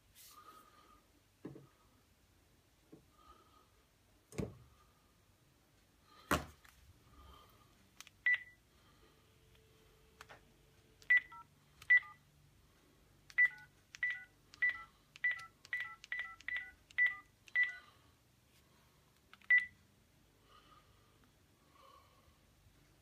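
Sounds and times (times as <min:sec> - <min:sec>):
phone keypad beeps: 0:08.2 - 0:08.6, 0:11.0 - 0:12.2, 0:13.3 - 0:17.8, 0:19.4 - 0:19.8.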